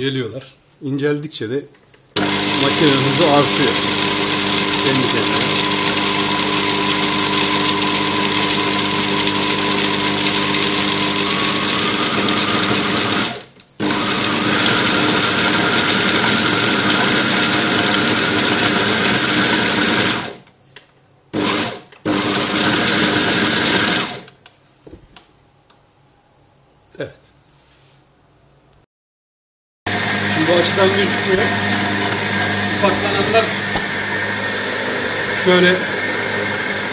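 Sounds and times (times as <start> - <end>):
food processor motor grinding nuts: 2.2 - 20.5, 21.3 - 24.3, 29.9 - 36.9.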